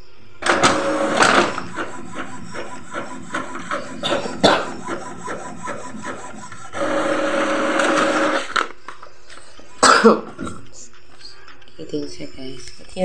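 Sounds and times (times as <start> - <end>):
printer carriage rasping: 0.4 - 8.7
printer motor whir: 0.4 - 9.7.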